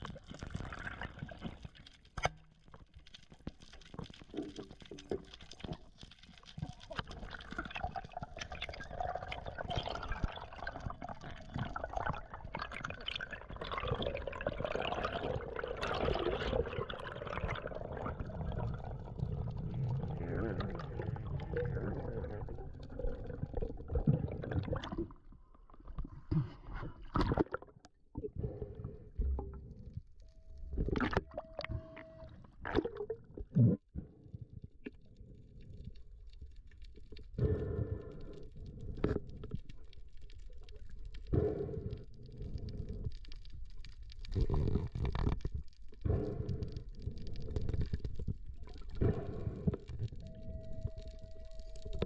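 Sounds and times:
underwater gurgling and bubbling: 0:03.8 - 0:29.9, 0:30.7 - 0:34.5, 0:40.4 - 0:52.0.

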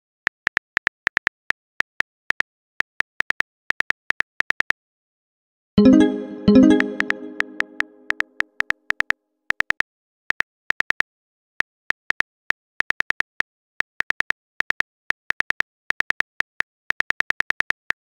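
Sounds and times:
low notification chime: 0:05.8 - 0:08.1.

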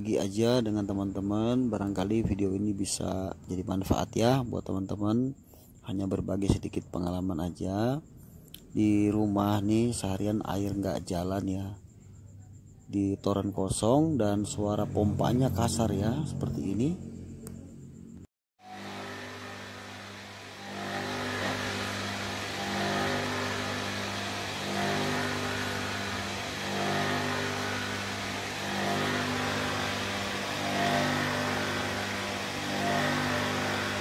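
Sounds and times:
electric water pump humming: 0:18.6 - 0:34.0.

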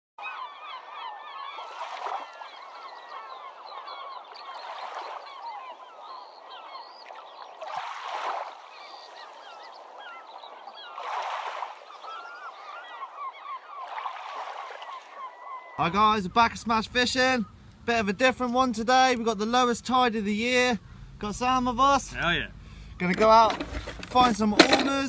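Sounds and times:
flock of birds chattering: 0:00.2 - 0:25.0.

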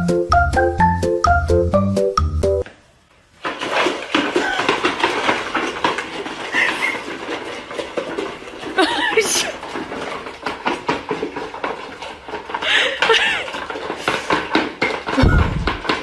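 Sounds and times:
puppies clattering at food bowls: 0:03.4 - 0:16.0.

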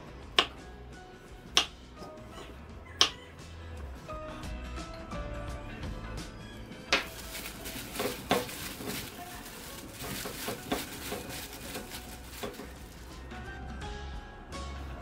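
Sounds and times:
cucumber pieces clattering in bowl: 0:07.0 - 0:12.9
plastic glove rustling: 0:07.0 - 0:13.3.

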